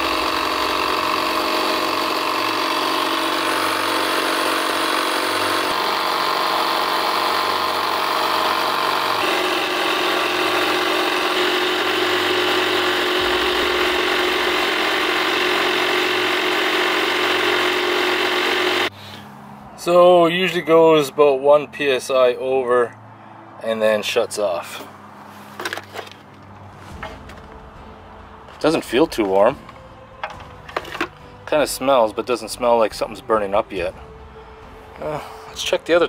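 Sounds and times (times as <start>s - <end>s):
tire inflator running: 0.0s - 19.4s, 30.2s - 31.6s.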